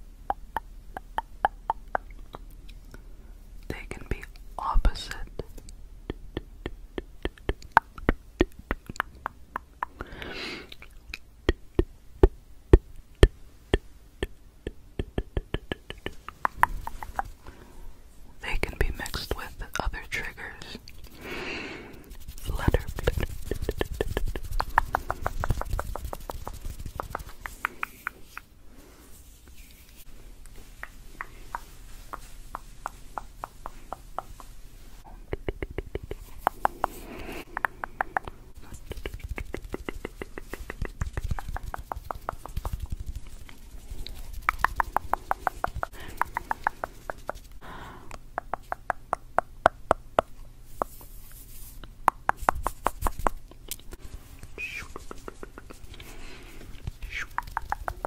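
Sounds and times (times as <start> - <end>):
tongue clicking: 0.2 - 3.0, 5.6 - 17.4, 22.7 - 26.3, 30.4 - 34.5, 35.3 - 42.8, 44.0 - 47.4, 48.1 - 50.9, 56.8 - 58.0.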